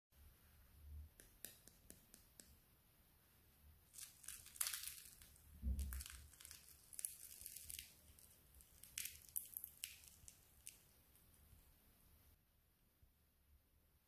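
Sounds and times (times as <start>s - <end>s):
fried crust crackling and tearing: 3.9s - 10.8s.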